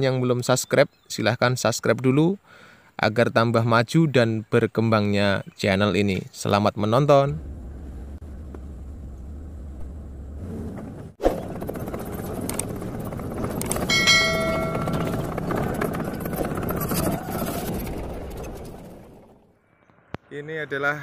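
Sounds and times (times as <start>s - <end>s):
steady low hum: 7.2s - 16.9s
short bell chime: 13.9s - 15.2s.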